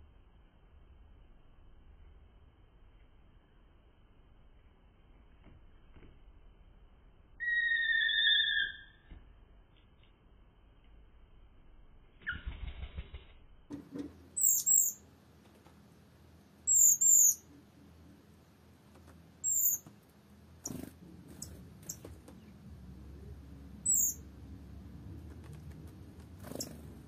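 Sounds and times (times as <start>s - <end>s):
small songbird calling: 7.4s - 9.1s, 14.4s - 15.0s, 16.7s - 17.5s, 19.4s - 19.9s, 23.8s - 24.2s.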